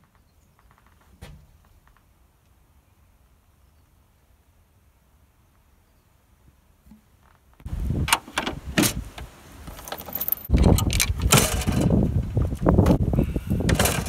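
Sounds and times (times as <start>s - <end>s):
metal clicks: 9.7s - 11.9s
chain jangling: 10.0s - 10.5s.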